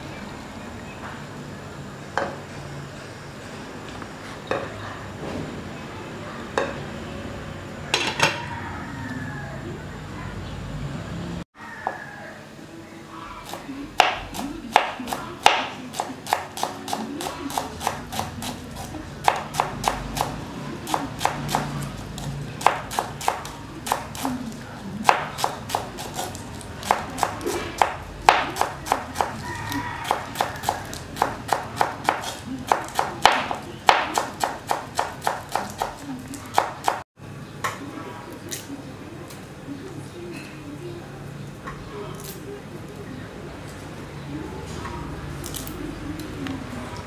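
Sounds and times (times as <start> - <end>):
knife chopping on cutting board: 13.5 - 24.3, 25.0 - 29.4, 30.0 - 37.0.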